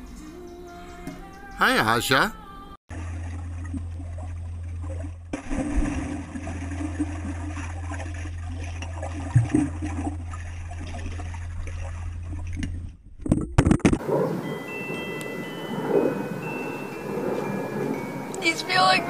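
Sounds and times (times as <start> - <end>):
steady low hum: 2.4 - 13.2
muffled swirling bubbling water: 2.9 - 14.4.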